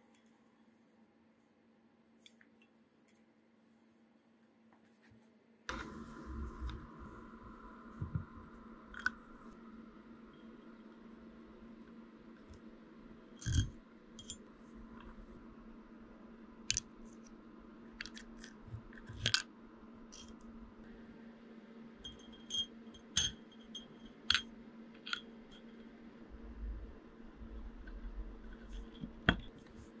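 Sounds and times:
faint steady hum: 0:00.0 - 0:30.0
small metal parts clinking: 0:13.4 - 0:14.4, 0:22.0 - 0:25.7.

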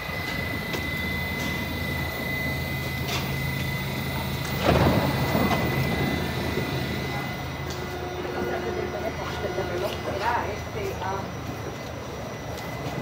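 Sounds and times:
train doors sliding open: 0:00.0 - 0:10.3
subway train humming: 0:00.0 - 0:13.0.

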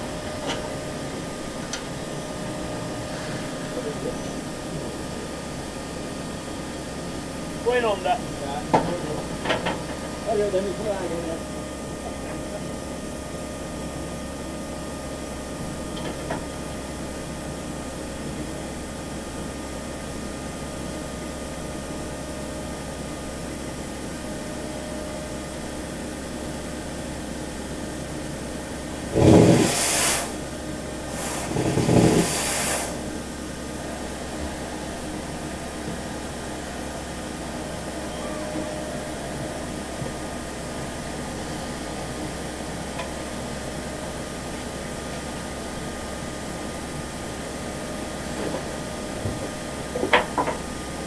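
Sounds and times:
steam train hum and hiss: 0:00.0 - 0:51.0
loud bursts of steam hissing: 0:28.9 - 0:33.2.

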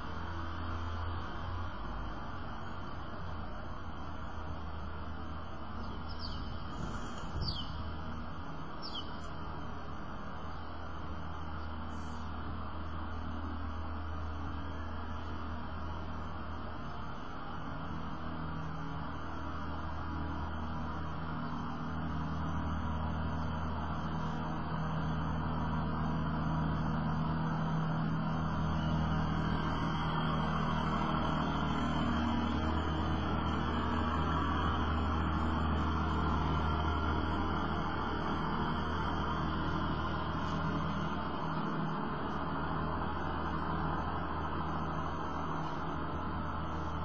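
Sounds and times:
low hum: 0:00.0 - 0:47.0.

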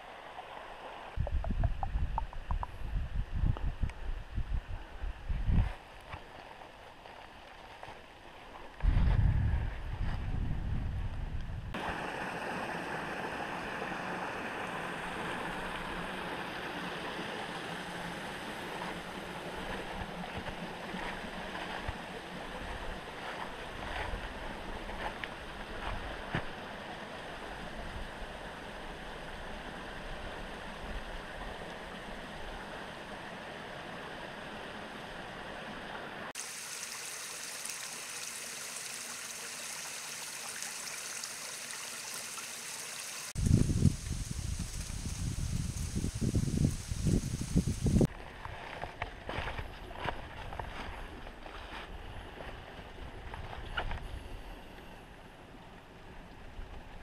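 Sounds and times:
creek trickling over rocks: 0:05.8 - 0:09.0, 0:11.7 - 0:48.8.

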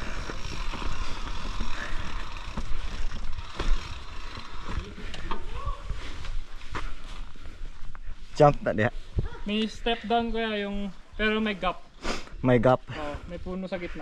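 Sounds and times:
bike knocking and rattling: 0:00.0 - 0:07.6
bike tyres rolling on dirt: 0:00.0 - 0:11.6.

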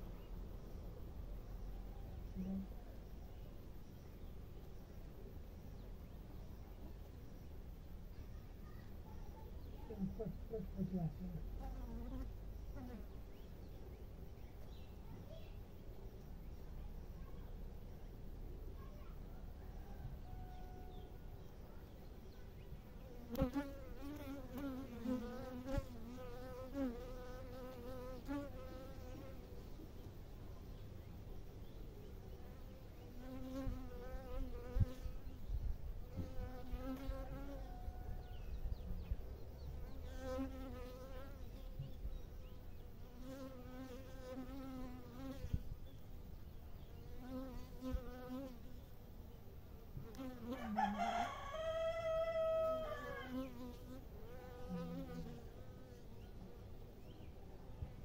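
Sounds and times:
rooster crowing: 0:19.4 - 0:21.3, 0:37.5 - 0:38.5, 0:50.5 - 0:53.6
honeybees buzzing: 0:23.0 - 0:29.4, 0:49.9 - 0:56.2.

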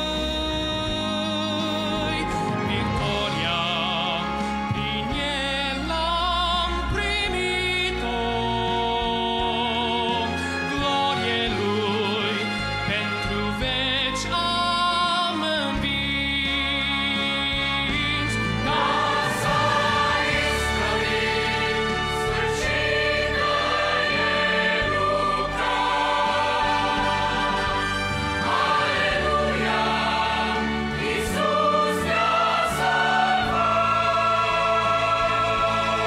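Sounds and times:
mixed choir singing a hymn: 0:18.2 - 0:36.0.

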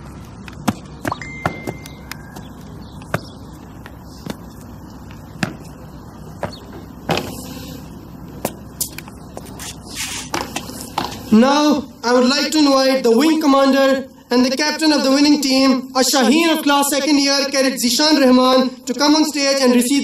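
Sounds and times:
boots striking ground marching: 0:00.0 - 0:07.6, 0:08.3 - 0:11.3
low background hum: 0:00.0 - 0:17.0.

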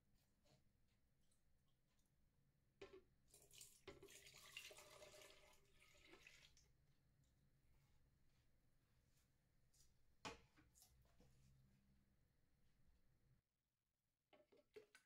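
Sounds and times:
milk pouring into blender jug: 0:03.3 - 0:06.7.

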